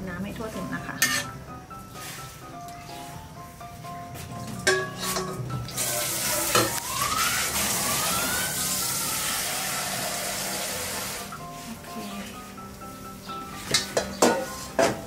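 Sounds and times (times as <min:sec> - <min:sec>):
ladle knocking against wok: 0:04.5 - 0:05.5, 0:13.6 - 0:15.0
boiling water hissing: 0:04.7 - 0:12.6.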